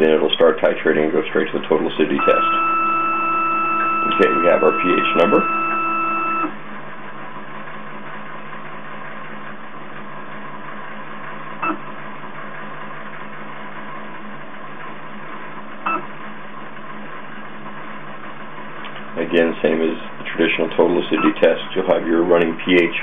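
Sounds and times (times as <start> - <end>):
pump whirring: 0.0 - 10.7
machine hum: 0.0 - 23.0.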